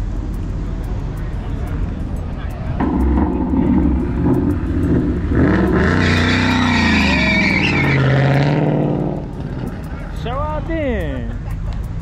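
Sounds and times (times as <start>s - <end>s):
car engine revving: 0.0s - 12.0s
tyres squealing: 2.3s - 10.6s.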